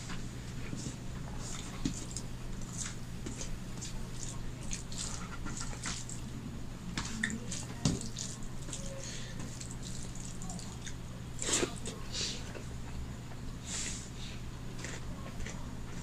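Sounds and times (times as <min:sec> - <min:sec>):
steady low hum: 0:00.0 - 0:16.0
fingers squelching food: 0:01.4 - 0:06.2.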